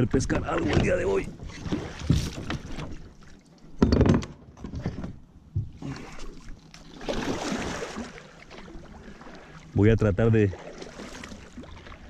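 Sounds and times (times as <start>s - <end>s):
paddle splashing through water: 0.5s - 3.5s, 5.7s - 9.8s, 10.5s - 12.0s.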